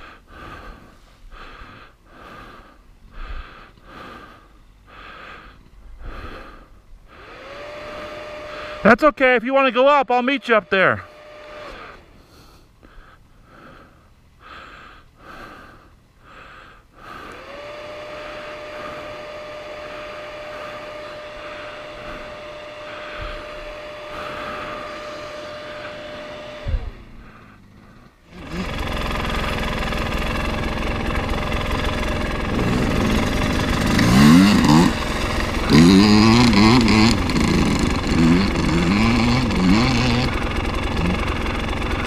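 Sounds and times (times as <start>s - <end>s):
dirt bike engine: 0.0s - 42.0s
loud dirt bike engine riding off: 17.4s - 42.0s.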